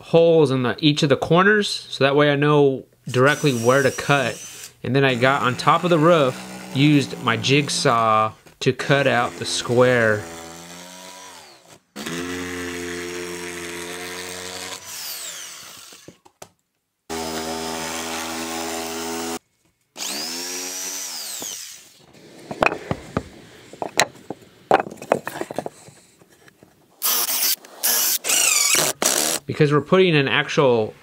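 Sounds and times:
jigsaw cutting wood sheathing: 3.1s - 16.2s, 17.1s - 19.4s, 20.0s - 23.2s, 27.0s - 29.4s
cordless drill whirring: 3.2s - 7.8s, 9.1s - 16.2s, 20.0s - 22.1s, 27.0s - 29.4s
sharp knocks and clatters: 22.4s - 26.7s.

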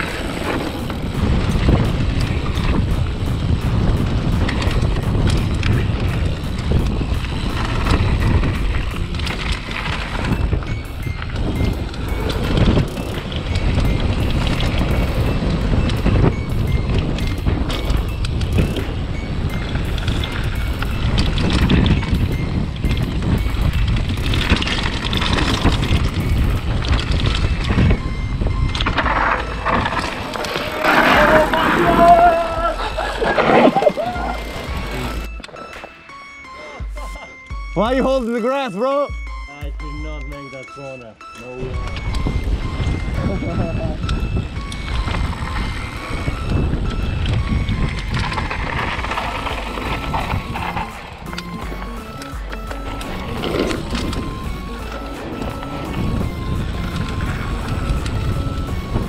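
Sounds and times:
steady low rumble: 0.0s - 35.4s
wind buffeting microphone: 0.0s - 35.4s, 41.6s - 59.0s
bike tyres and frame rattling: 0.0s - 36.0s, 41.7s - 59.0s.

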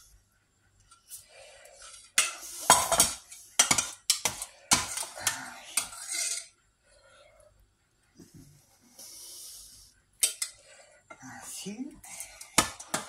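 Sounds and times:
metal spoon scraping metal pot: 1.8s - 6.6s.

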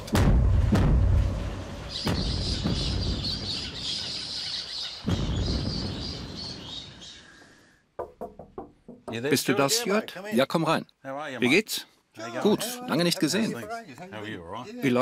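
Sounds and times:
deep thumps: 0.0s - 3.9s
deep rumble of blasting: 0.0s - 4.3s.

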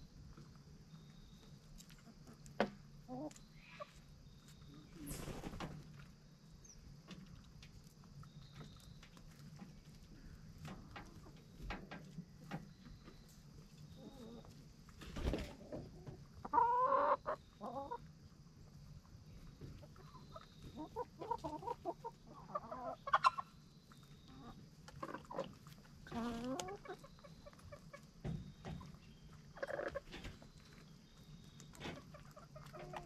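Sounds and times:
rustles: 0.0s - 16.4s, 23.6s - 33.0s
hens clucking: 1.4s - 6.1s, 7.0s - 33.0s.

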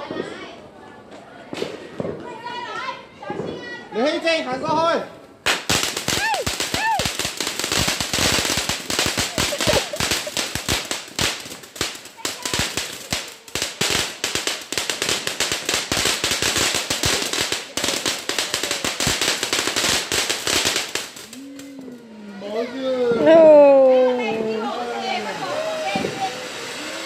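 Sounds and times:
fireworks fountain crackling: 1.4s - 27.0s.

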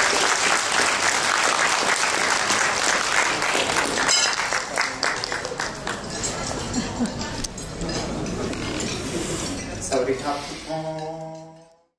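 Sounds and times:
crowd applauding: 0.0s - 6.9s.

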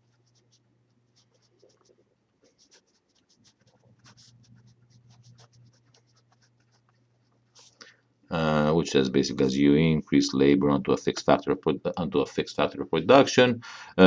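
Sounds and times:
pen scratching on paper: 0.0s - 7.8s.

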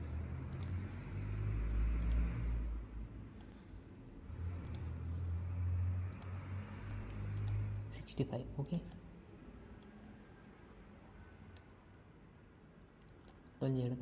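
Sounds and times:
computer mouse clicks: 0.5s - 0.8s, 1.4s - 2.3s, 4.6s - 5.0s, 6.1s - 7.7s, 9.8s - 10.2s, 11.5s - 11.8s.

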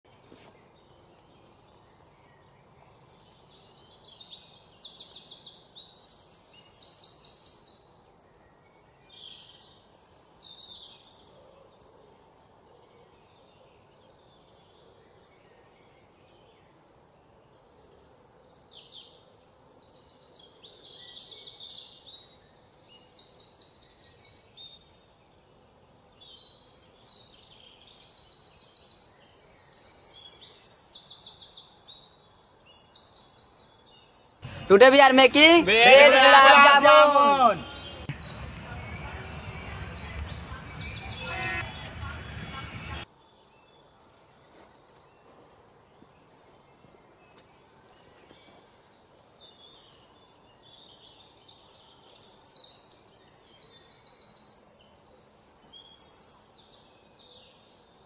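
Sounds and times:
faint background noise: 0.0s - 58.0s
birds chirping and trilling: 37.6s - 43.1s.

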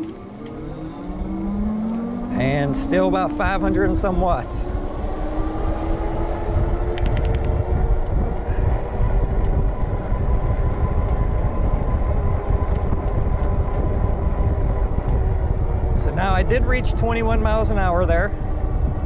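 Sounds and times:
electric motor whining: 0.0s - 8.4s
tire road noise: 0.0s - 19.0s
wind rumble on microphone: 0.0s - 19.0s
sharp clicks: 6.9s - 7.6s.

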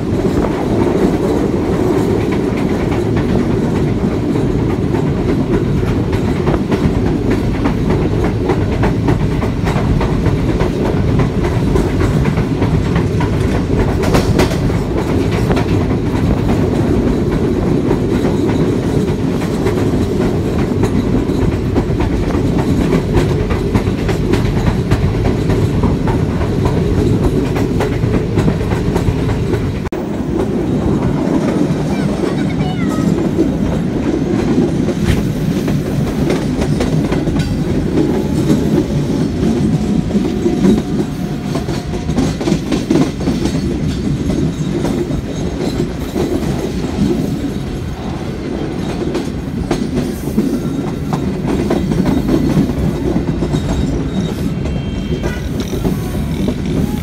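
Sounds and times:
train rumble: 0.0s - 57.0s
wheels clacking on rails: 0.0s - 57.0s.

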